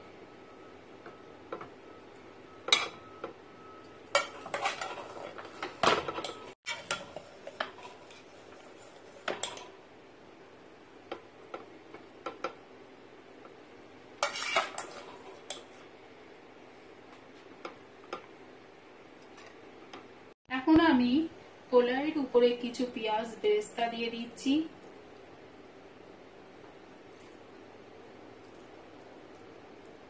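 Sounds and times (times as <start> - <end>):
metal spoon scraping metal pot: 4.2 - 5.5, 14.2 - 15.6.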